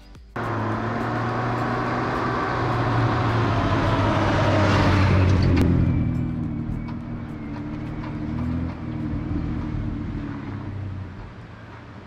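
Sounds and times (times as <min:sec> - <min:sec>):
vehicle engine running: 0:00.3 - 0:12.0.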